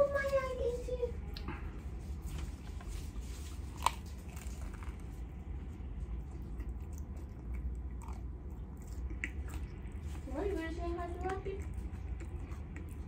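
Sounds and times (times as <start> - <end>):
crunch of biting bagel: 3.5 - 5.3
chewing: 3.5 - 13.0.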